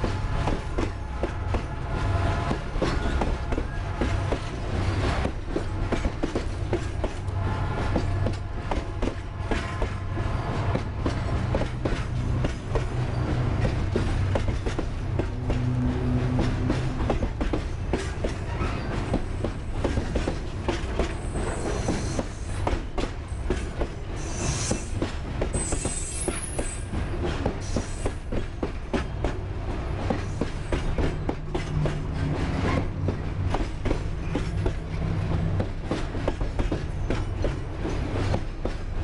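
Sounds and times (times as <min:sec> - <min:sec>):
clanks over rail joints: 0:00.0 - 0:39.0
train wheels rumbling: 0:00.0 - 0:39.0
high-pitched wheel squeals: 0:25.6 - 0:26.8.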